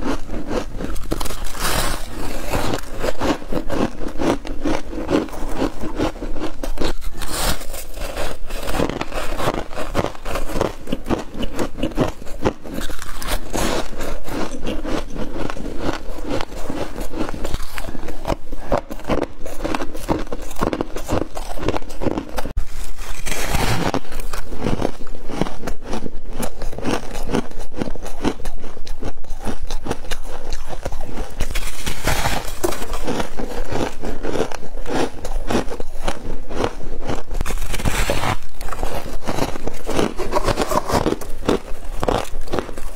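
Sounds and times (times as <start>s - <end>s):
chewing and crunching frost: 0.0s - 42.9s
hand scraping frost: 7.0s - 10.1s, 22.7s - 24.3s, 31.4s - 33.1s, 37.5s - 42.1s.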